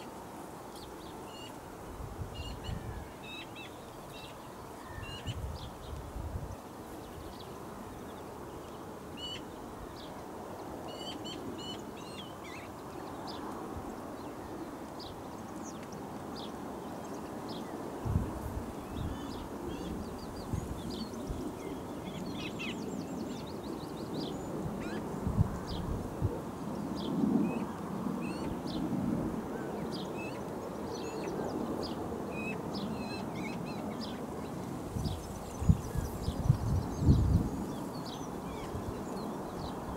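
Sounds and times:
steady outdoor hiss: 0:00.0 - 0:39.9
wild birds chirping and singing: 0:06.9 - 0:26.0, 0:26.7 - 0:39.9.

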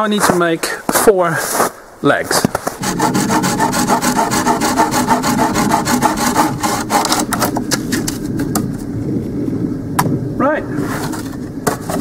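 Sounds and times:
hand saw cutting stick: 0:02.8 - 0:07.5.

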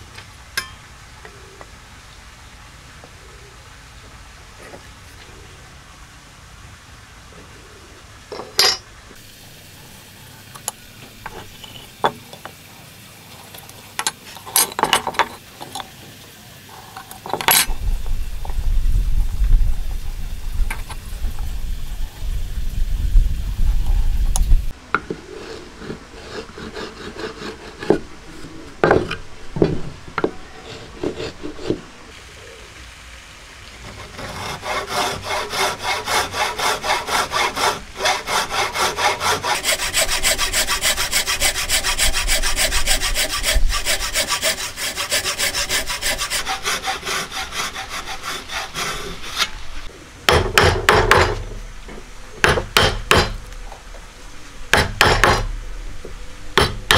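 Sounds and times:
hand saw cutting wood: 0:25.3 - 0:28.1, 0:30.6 - 0:31.8, 0:33.8 - 0:51.4.

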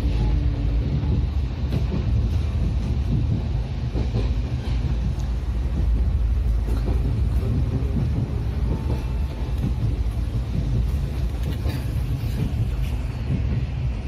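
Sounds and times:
train coach rumble: 0:00.0 - 0:14.0.

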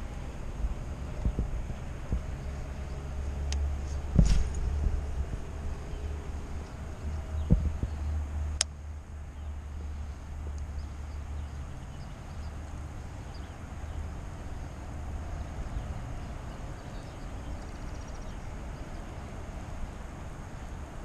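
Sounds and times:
wind buffeting microphone: 0:00.0 - 0:08.4.

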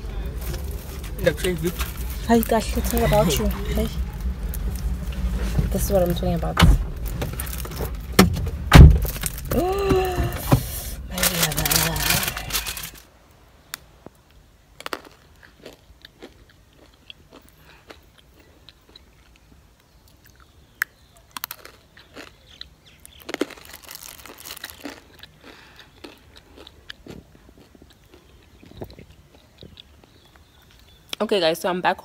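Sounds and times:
crisp cracks of bites: 0:09.0 - 0:09.6, 0:11.2 - 0:13.0, 0:14.8 - 0:31.2
crunching and chewing biscuit: 0:11.0 - 0:13.0, 0:14.8 - 0:31.2.

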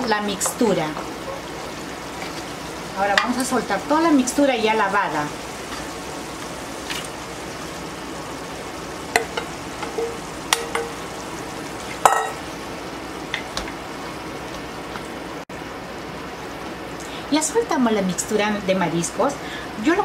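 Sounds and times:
food sizzling in a pan: 0:00.0 - 0:20.0.

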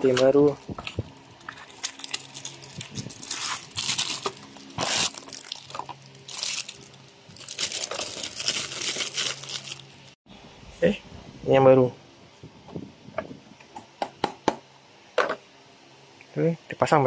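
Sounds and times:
plastic film crinkling: 0:00.1 - 0:10.2.

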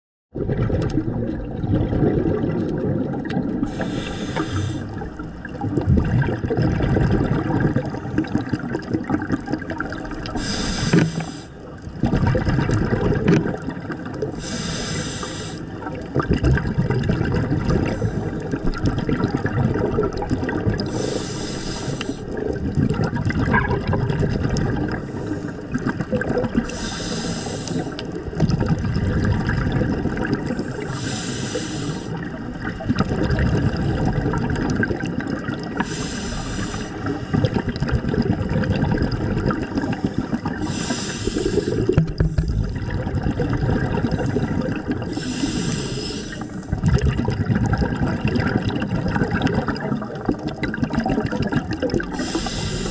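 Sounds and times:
bubbles gurgling: 0:00.3 - 0:52.9
regulator breathing hiss: 0:03.7 - 0:05.0, 0:10.4 - 0:11.6, 0:14.4 - 0:15.8, 0:20.9 - 0:22.3, 0:26.7 - 0:28.1, 0:30.6 - 0:32.2, 0:35.8 - 0:37.4, 0:40.6 - 0:42.5, 0:45.1 - 0:46.6, 0:52.1 - 0:52.9.

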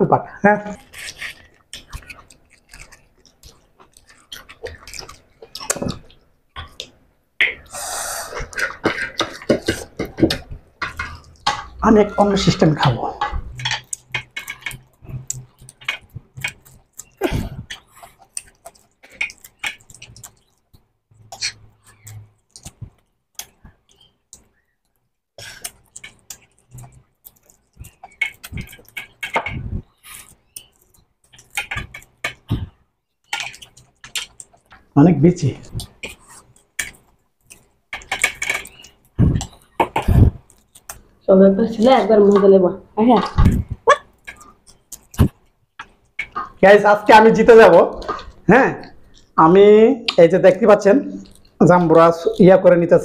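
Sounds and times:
mouth-smacking chewing: 0:00.7 - 0:42.5, 0:43.1 - 0:52.6
mouth hiss: 0:07.7 - 0:08.4
wet mouth smacks and clicks: 0:13.8 - 0:24.5, 0:35.6 - 0:41.1, 0:43.4 - 0:46.6.

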